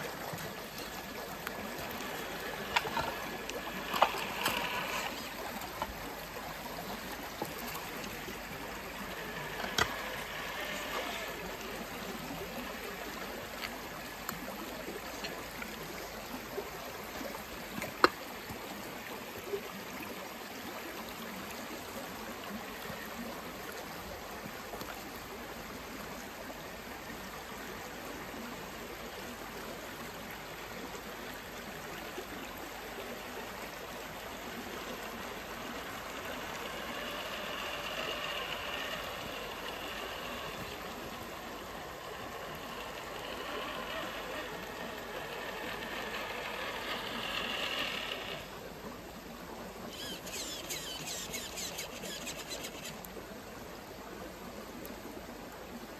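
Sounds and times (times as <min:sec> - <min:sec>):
electric motor and gears whine: 0:00.0 - 0:29.2, 0:30.2 - 0:55.8
fast-flowing creek: 0:00.0 - 0:55.9.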